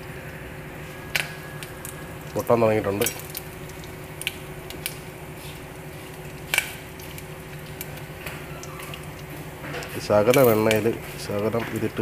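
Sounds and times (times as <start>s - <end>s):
steady low hum: 0.0s - 12.0s
corn kernels popping in a pot: 1.1s - 12.0s.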